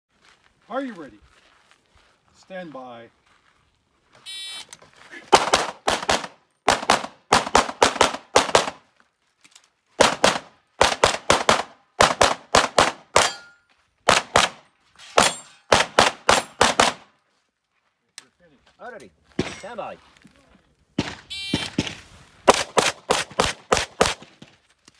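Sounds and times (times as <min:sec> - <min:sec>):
rapid gunshots: 0:05.3 - 0:08.8, 0:10.0 - 0:13.4, 0:14.1 - 0:14.6, 0:15.2 - 0:17.1, 0:21.0 - 0:24.6.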